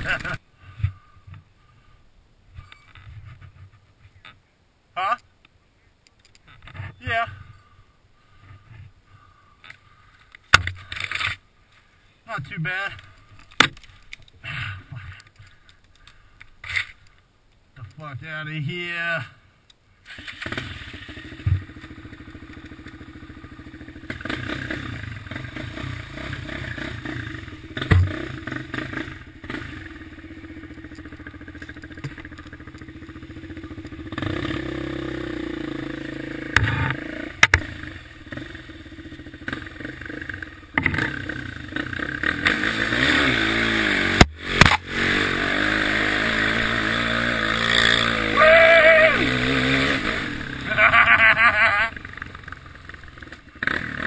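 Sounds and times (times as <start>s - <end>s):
quad bike engine revving: 20.1s - 54.0s
thuds from bumps: 27.8s - 28.3s.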